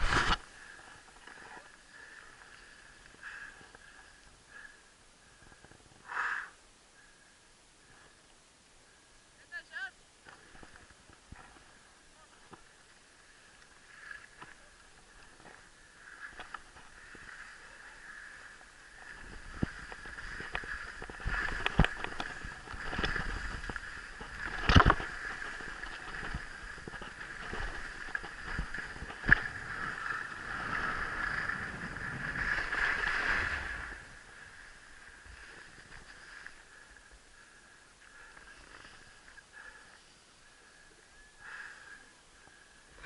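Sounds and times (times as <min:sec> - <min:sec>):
bicycle riding rush: 0:13.4 - 0:40.1.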